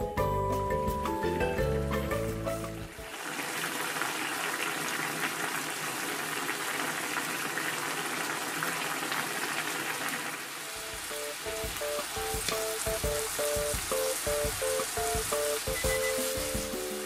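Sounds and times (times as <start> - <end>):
light background music: 0.0 - 3.0, 10.9 - 17.0
broth boiling in a frying pan: 2.6 - 17.0.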